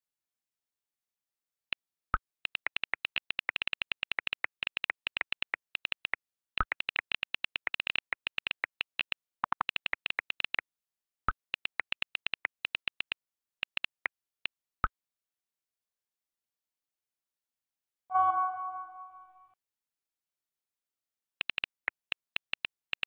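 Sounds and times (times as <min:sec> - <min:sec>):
phone keyboard clicks: 0:02.4 - 0:10.6, 0:11.4 - 0:14.6, 0:21.4 - 0:23.0.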